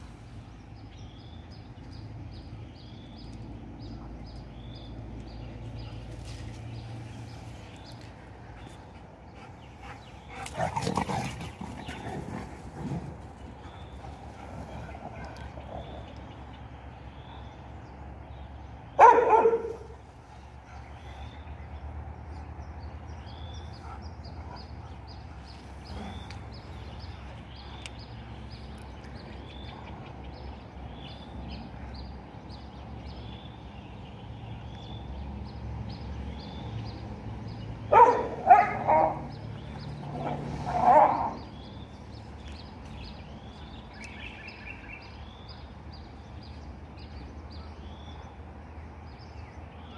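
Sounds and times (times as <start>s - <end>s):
dog barking: 19.0s - 20.0s, 37.9s - 39.3s, 40.2s - 41.5s.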